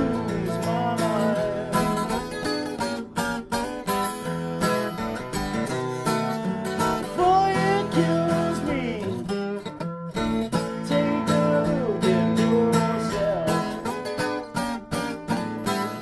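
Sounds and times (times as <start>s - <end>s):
man singing: 0.0s - 3.1s, 6.8s - 9.5s, 10.5s - 14.2s
acoustic guitar strumming: 0.0s - 16.0s.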